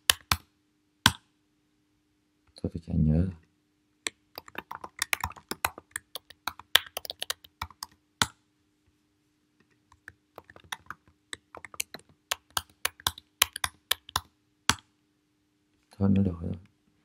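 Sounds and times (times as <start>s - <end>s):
faint steady hum: 0.0s - 17.0s
fast typing on keyboard: 4.4s - 8.0s, 10.4s - 14.3s.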